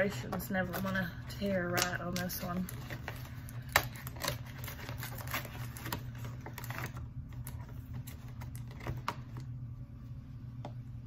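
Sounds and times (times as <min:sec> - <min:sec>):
paper rustling: 0:00.0 - 0:09.4
cardboard tearing with crackles: 0:01.8 - 0:07.6.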